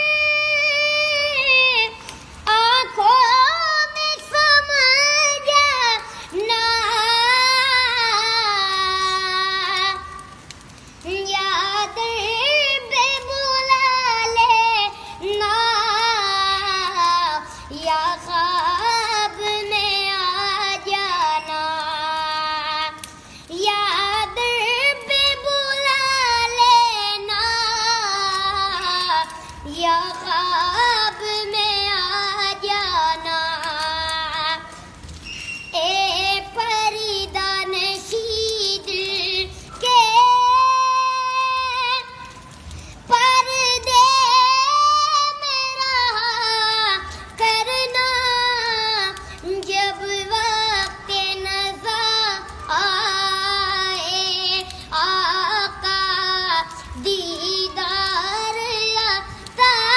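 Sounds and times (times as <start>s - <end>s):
boy singing solo: 11.1s - 34.7s, 43.1s - 59.9s.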